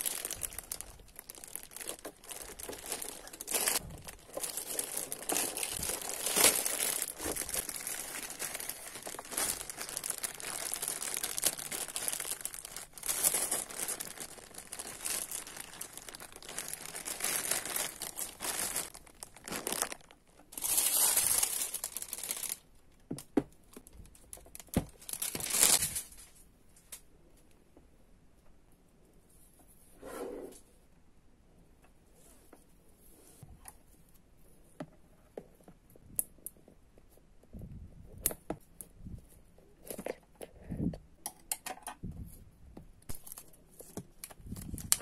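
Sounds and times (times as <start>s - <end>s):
plastic bag crinkling: 0.0s - 22.7s, 24.0s - 26.3s, 43.1s - 45.0s.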